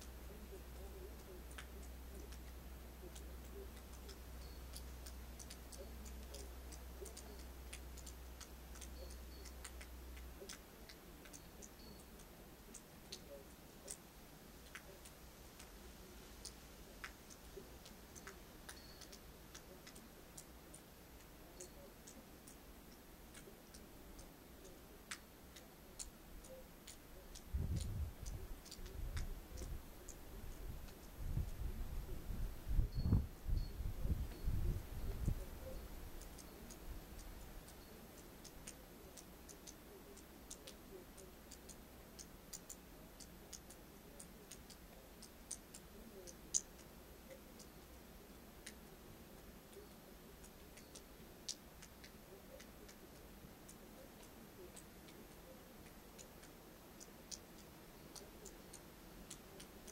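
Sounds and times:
faint small ticks and clicks: 0.0 - 59.9
wind buffeting microphone: 27.5 - 28.4, 30.7 - 35.4.

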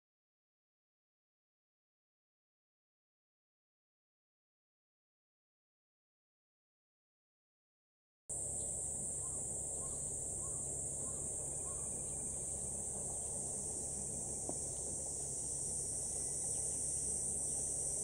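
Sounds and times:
cicadas buzzing: 8.3 - 18.0
low background rumble: 8.3 - 18.0.

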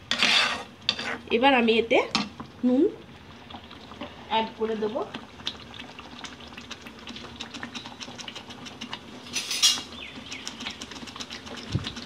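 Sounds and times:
metal spatula scraping frying pan: 0.0 - 1.3, 9.3 - 9.9.

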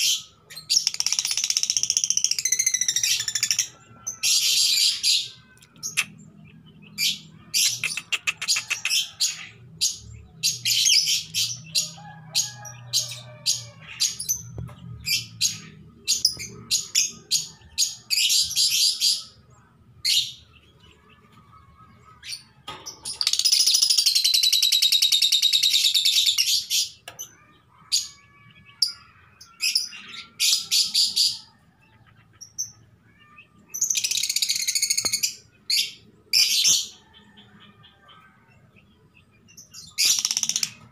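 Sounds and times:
lovebird chirping and chattering: 0.0 - 11.9, 22.2 - 27.2, 32.3 - 37.0, 39.6 - 40.9.

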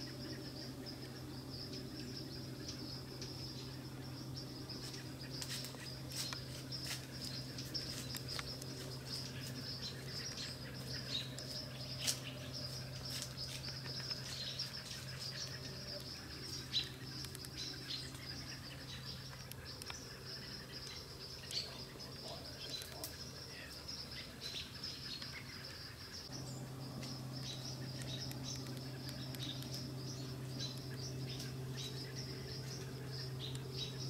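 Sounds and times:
faint low hum: 0.0 - 34.0
high-pitched insect trill: 0.0 - 34.0
clicks and chirps: 27.0 - 31.7.

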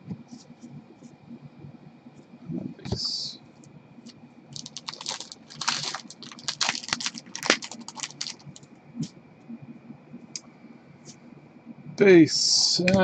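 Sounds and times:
wrapper crinkling: 4.6 - 8.6.

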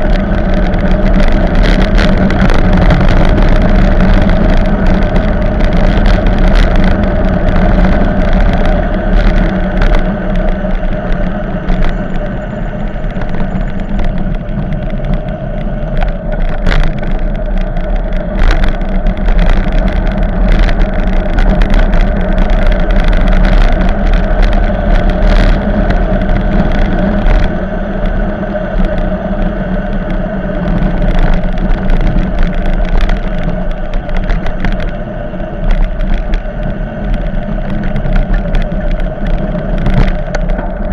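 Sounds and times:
bicycle knocks and rattles: 0.0 - 40.9
rushing roar of wind and tyres: 0.0 - 40.9
wind buffeting microphone: 0.0 - 40.9.

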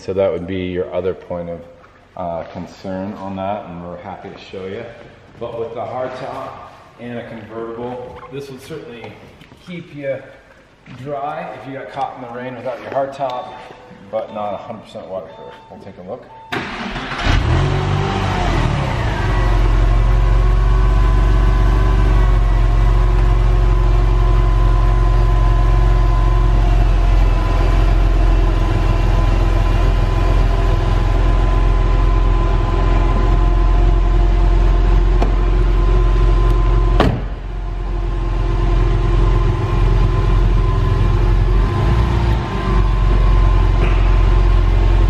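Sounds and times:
car engine idling: 16.6 - 45.0
power soft top closing: 36.9 - 37.5
sharp clunk: 37.0 - 37.4.

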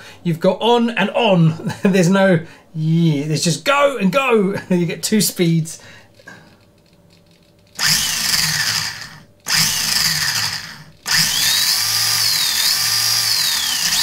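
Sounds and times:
electric motor whine: 7.8 - 14.0.

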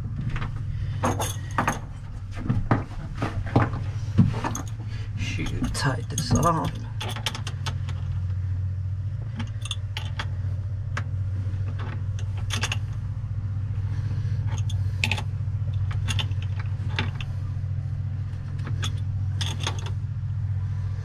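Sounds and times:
steady low hum: 0.0 - 21.0
wrench clinking on metal: 4.4 - 7.9, 9.4 - 10.3, 14.5 - 17.3.

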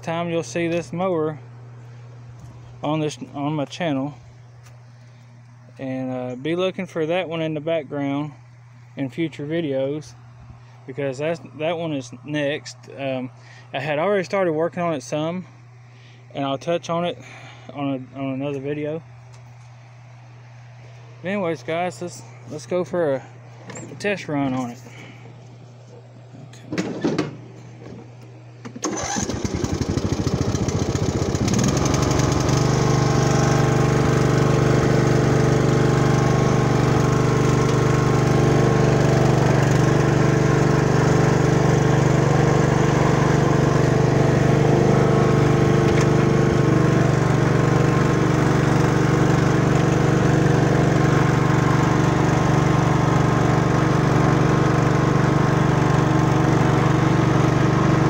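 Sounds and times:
lawn mower engine cranking and running: 0.0 - 8.2, 20.8 - 58.0.

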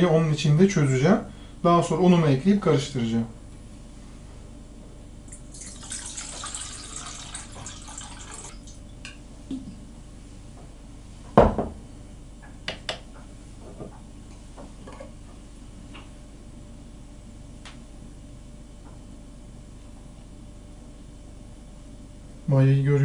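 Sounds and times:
water pouring into metal bowl: 5.5 - 8.7.

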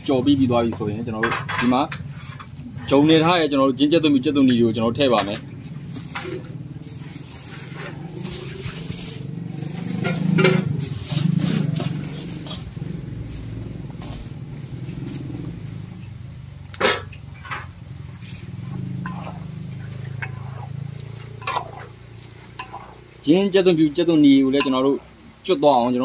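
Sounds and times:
metal clanking on wok: 0.0 - 2.6, 4.4 - 6.6, 9.5 - 13.6, 16.7 - 26.0
food sizzling in hot oil: 5.7 - 16.0, 17.3 - 26.0.

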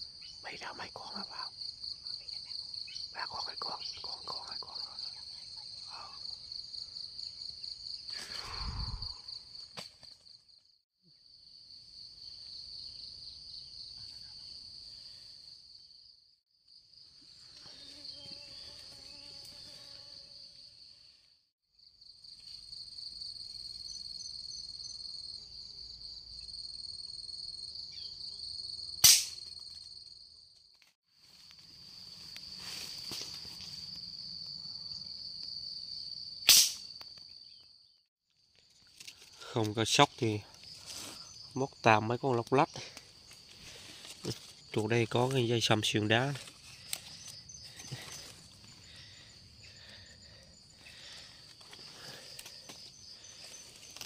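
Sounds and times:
insects shrilling: 8.0 - 9.7, 38.7 - 54.0
gunshot crack: 29.0 - 29.4, 36.5 - 36.8.

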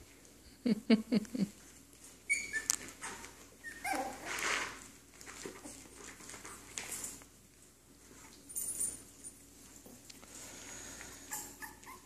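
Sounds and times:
puppies whimpering and yipping: 2.1 - 4.7, 11.1 - 12.0.

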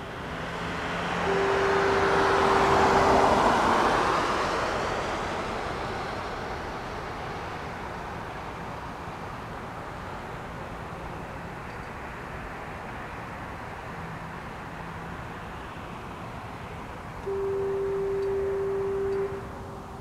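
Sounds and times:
road vehicle passing: 0.0 - 20.0
distant foghorn: 0.8 - 5.0, 17.2 - 19.6.

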